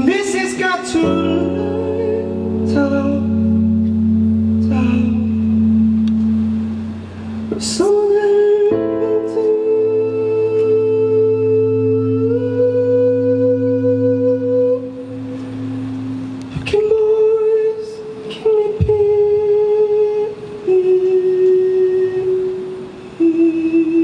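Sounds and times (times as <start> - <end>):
man humming held notes: 0.0 - 24.0
sustained keyboard chord: 0.0 - 24.0.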